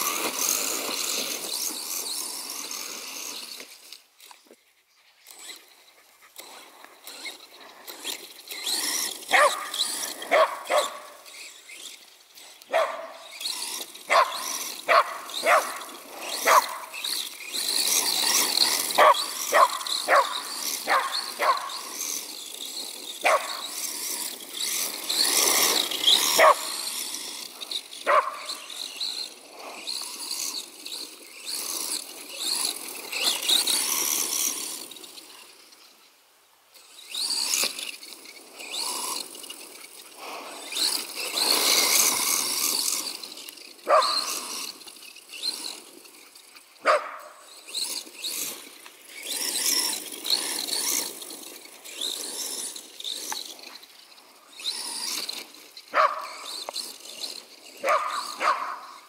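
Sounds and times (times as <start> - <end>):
rc car motor hissing: 0.0 - 59.0
dog barking: 12.7 - 13.1, 28.1 - 28.4, 43.9 - 44.2, 46.8 - 47.3, 56.0 - 56.3, 57.8 - 58.8.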